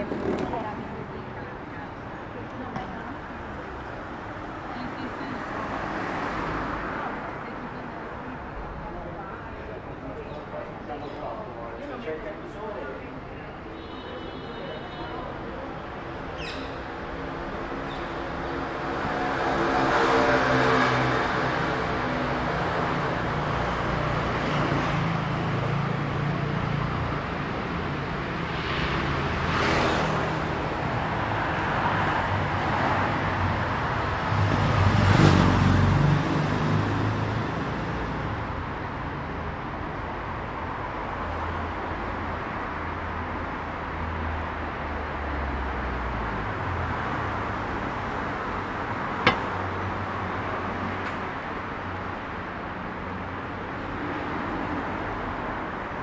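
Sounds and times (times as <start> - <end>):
cars passing: 0.0 - 13.8, 14.6 - 56.0
hum of motor vehicles: 0.0 - 56.0.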